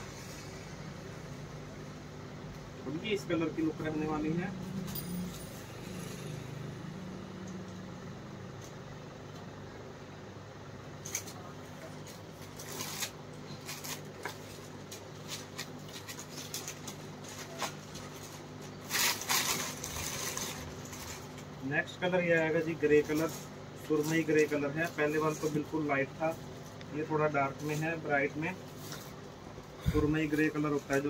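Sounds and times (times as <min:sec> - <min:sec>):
steady low hum: 0:00.0 - 0:31.0
cloth and plastic rustling: 0:11.0 - 0:21.5.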